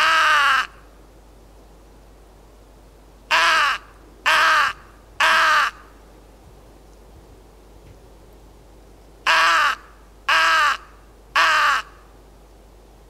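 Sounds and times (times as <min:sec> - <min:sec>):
crow call caws: 0:00.0 - 0:00.8, 0:03.3 - 0:05.9, 0:09.3 - 0:12.1.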